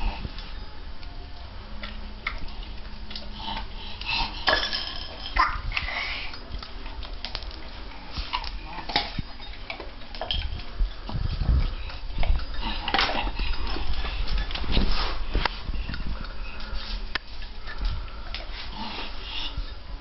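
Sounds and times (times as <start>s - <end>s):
kibble rattling in metal bowl: 4.2s - 6.2s, 8.3s - 11.1s.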